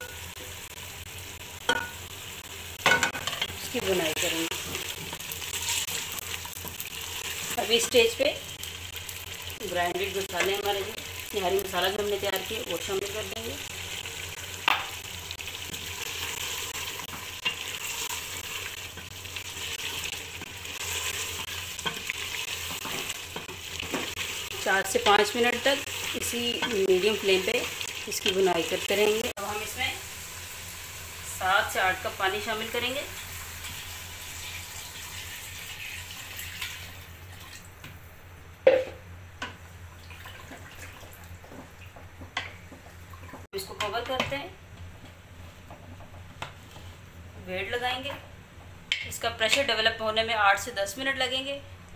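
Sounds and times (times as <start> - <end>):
meat sizzling in oil: 0.0 - 37.4.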